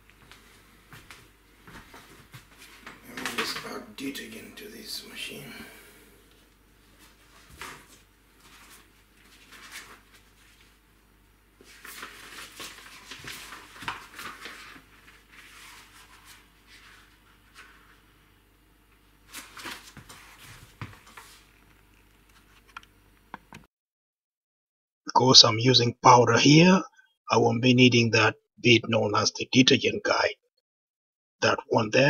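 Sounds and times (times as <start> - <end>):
rustling and scraping of handling: 0.1 - 5.1, 6.3 - 10.8, 11.6 - 18.2, 19.3 - 22.8.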